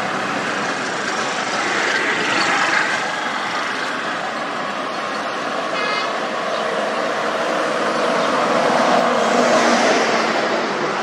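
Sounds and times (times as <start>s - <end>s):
bus engine approaching: 0.0s - 11.0s
highway traffic passing: 0.0s - 11.0s
car horn toot: 5.7s - 6.2s.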